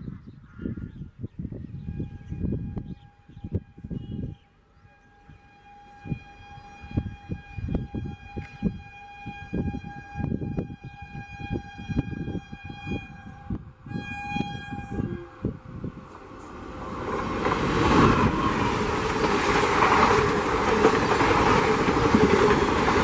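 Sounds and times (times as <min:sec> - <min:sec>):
locomotive horn long note: 0:01.8 - 0:23.0.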